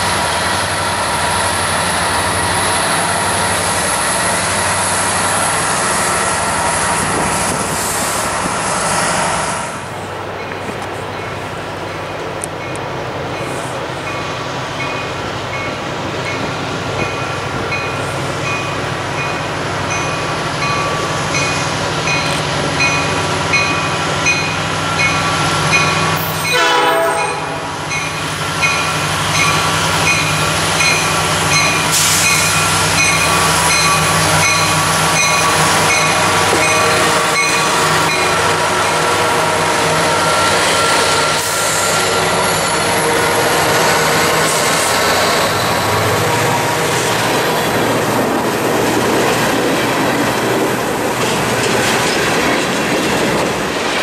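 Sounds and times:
diesel locomotive passing: 0:00.0 - 0:54.0
train horn: 0:26.2 - 0:27.7, 0:36.1 - 0:44.6.

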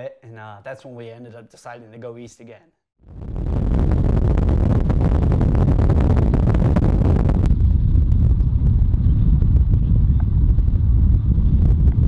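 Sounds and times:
wind rumbling on microphone: 0:03.0 - 0:12.0
crackly hiss: 0:03.1 - 0:09.2.

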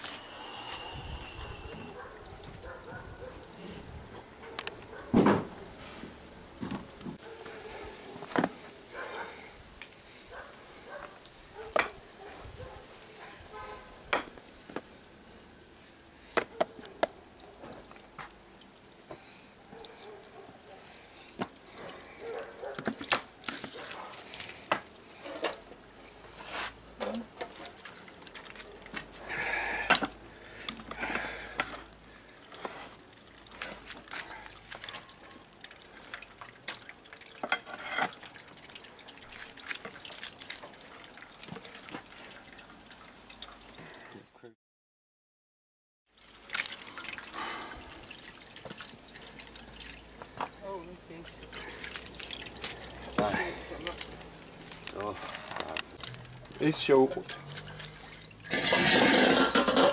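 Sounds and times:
juice dripping into metal pot: 0:12.9 - 0:26.4, 0:27.3 - 0:44.1, 0:46.1 - 0:59.9.

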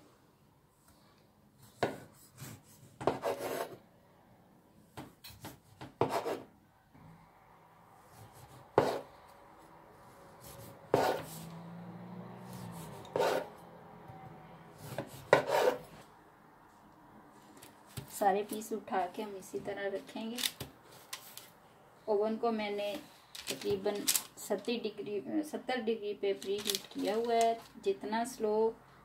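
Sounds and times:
bread knife sawing through cake: 0:08.1 - 0:09.1, 0:10.4 - 0:11.4, 0:12.5 - 0:13.5, 0:14.8 - 0:15.9.

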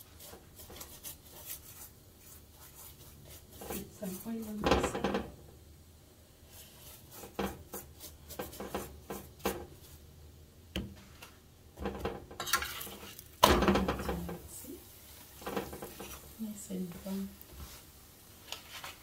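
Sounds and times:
metal spoon scraping a pan: 0:00.0 - 0:05.3, 0:06.5 - 0:10.0, 0:11.8 - 0:17.8
sizzle: 0:00.0 - 0:19.0.

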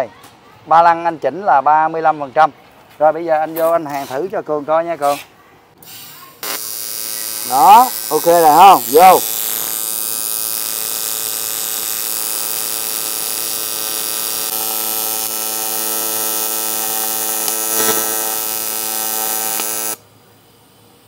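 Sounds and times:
welding arc buzzing: 0:05.8 - 0:20.0.

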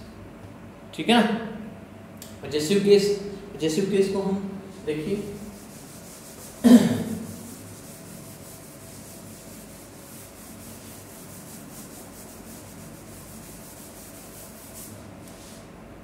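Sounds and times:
chalk duster rubbing chalkboard: 0:04.7 - 0:15.7.

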